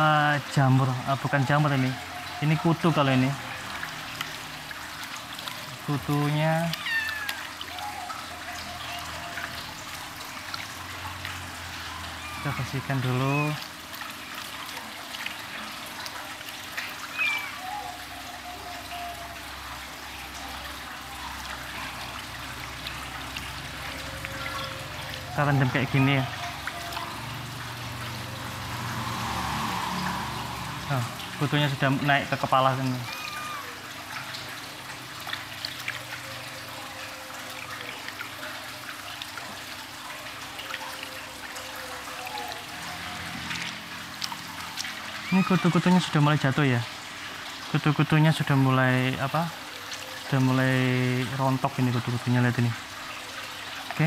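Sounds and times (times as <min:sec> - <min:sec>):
water splashing in a tub: 0:00.0 - 0:54.0
hands splashing water: 0:22.3 - 0:32.0.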